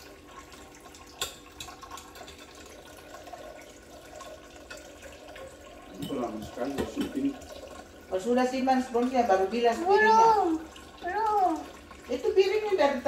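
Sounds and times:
tap water trickling into sink: 0.0s - 8.1s.

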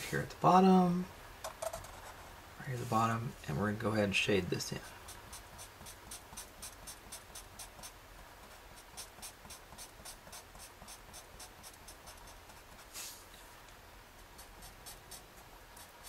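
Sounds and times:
marker scratching on paper: 4.9s - 13.2s, 14.2s - 16.0s.

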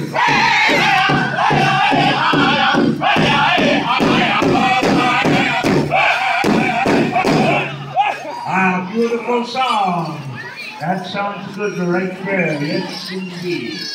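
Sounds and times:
group singing in high voices: 0.0s - 7.8s
big drum beating steadily: 0.0s - 7.9s.

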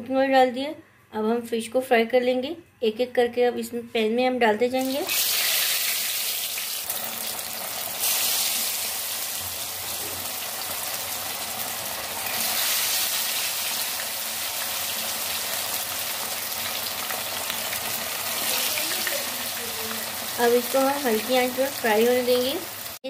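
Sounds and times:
fish sizzling in hot oil: 4.8s - 23.0s.

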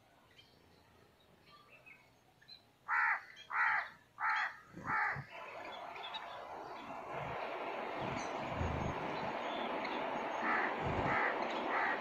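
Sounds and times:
small birds chirping: 0.2s - 12.0s
crow cawing: 2.9s - 5.2s, 10.4s - 12.0s
steady rushing noise: 4.8s - 12.0s.

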